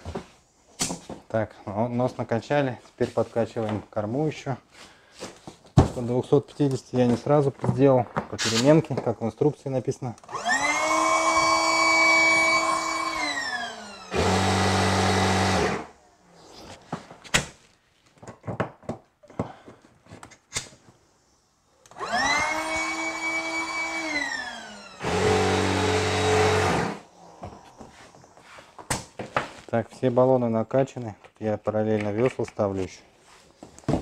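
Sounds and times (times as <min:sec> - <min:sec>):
electric pump whining: 0:10.2 - 0:15.9, 0:21.9 - 0:27.0.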